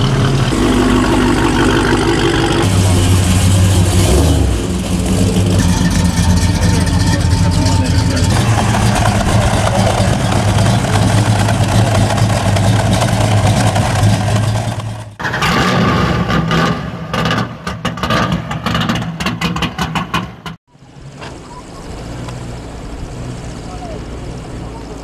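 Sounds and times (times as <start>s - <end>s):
car engine deep rumble: 0.0s - 15.2s, 16.2s - 25.0s
engine running choppily: 0.0s - 15.2s, 20.7s - 25.0s.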